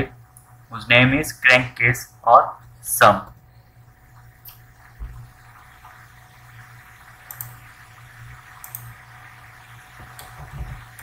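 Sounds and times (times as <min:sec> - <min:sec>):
low hum and hiss: 0:00.0 - 0:11.0
computer mouse clicks: 0:07.3 - 0:07.6, 0:08.6 - 0:08.9.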